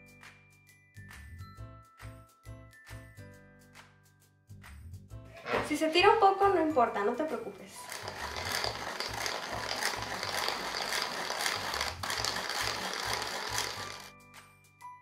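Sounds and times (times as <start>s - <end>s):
hand-crank sifter rasping: 7.8s - 14.1s.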